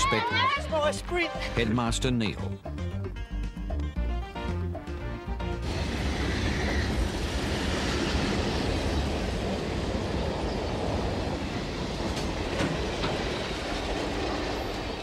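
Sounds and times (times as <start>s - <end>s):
wheels rumbling on rails: 5.6s - 15.0s.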